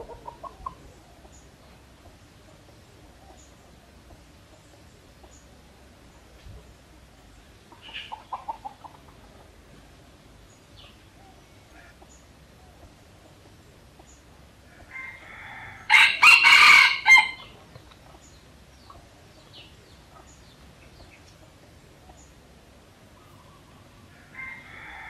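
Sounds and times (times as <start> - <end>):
faint bird calls: 7.2 - 9.6, 10.5 - 15.5, 23.0 - 25.0
rooster crowing: 14.7 - 17.6, 24.1 - 25.0.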